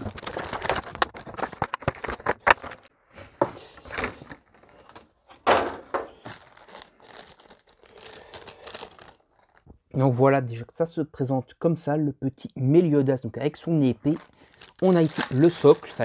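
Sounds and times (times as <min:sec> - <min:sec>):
plastic packaging crinkling: 0:00.0 - 0:02.9, 0:03.6 - 0:09.8, 0:14.0 - 0:16.0.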